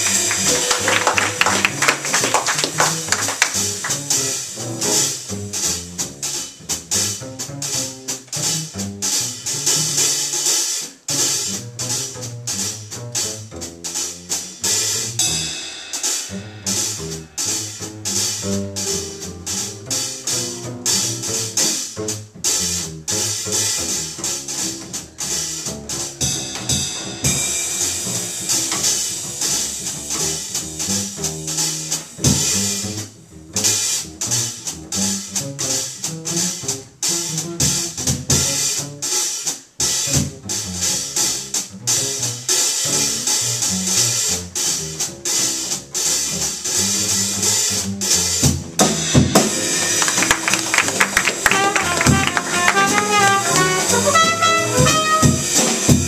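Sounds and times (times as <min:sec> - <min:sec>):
upright bass walking: 0:00.0 - 0:15.6, 0:16.3 - 0:56.0
drum kit with cymbals: 0:00.0 - 0:56.0
saxophone line: 0:51.4 - 0:55.6.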